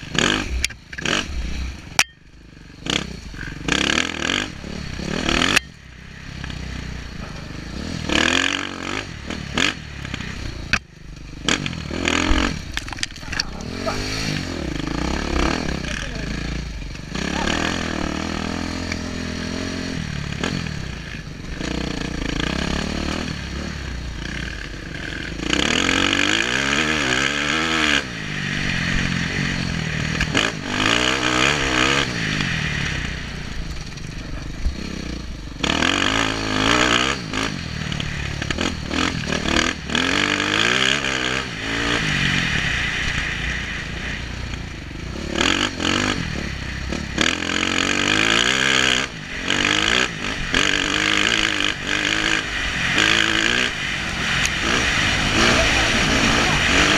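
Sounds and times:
dirt bike engine revving: 0.0s - 56.9s
wind rushing over microphone: 41.4s - 47.2s, 49.0s - 56.9s.

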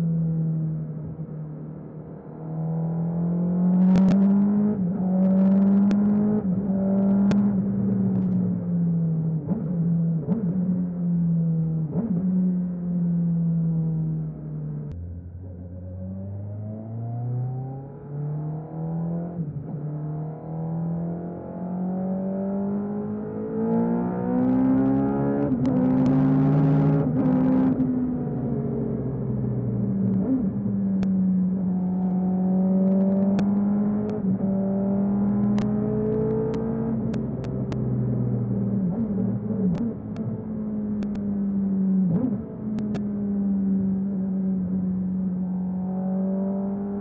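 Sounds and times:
motorcycle engine revving: 29.4s - 40.4s.

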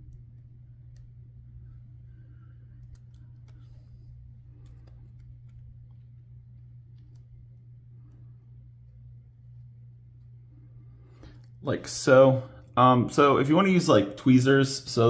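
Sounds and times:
faint clicks: 0.0s - 10.3s
sticker peeling and handling noises: 0.0s - 10.3s
steady low hum: 0.0s - 15.0s.

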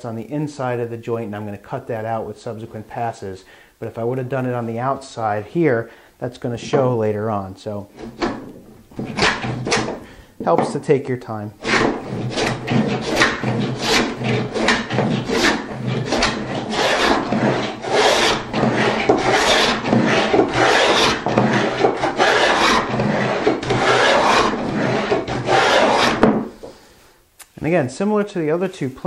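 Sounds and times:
plane rasping across wood: 8.0s - 10.0s, 11.6s - 26.5s.

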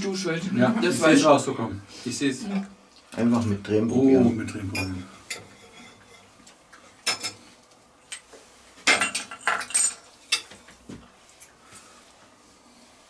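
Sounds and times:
glass bottles clinking: 8.9s - 10.0s.

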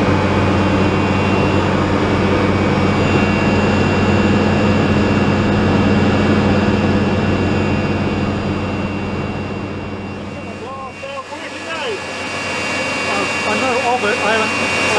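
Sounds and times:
jet engine roar with whine: 0.0s - 14.9s.

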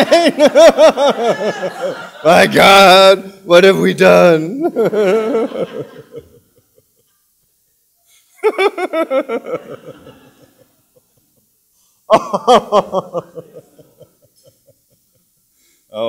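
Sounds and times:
man laughing: 0.0s - 2.7s, 4.5s - 7.0s, 8.4s - 10.6s, 12.1s - 15.1s.

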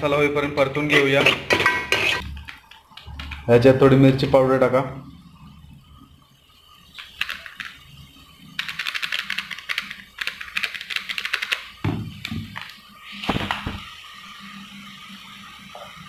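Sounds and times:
spoon scraping a metal pot: 0.8s - 2.2s.

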